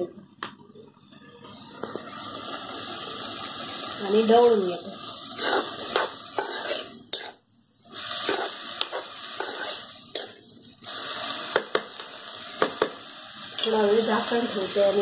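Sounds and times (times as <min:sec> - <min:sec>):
oil sizzling: 0:01.4 - 0:15.0
metal spoon stirring vegetables: 0:04.7 - 0:15.0.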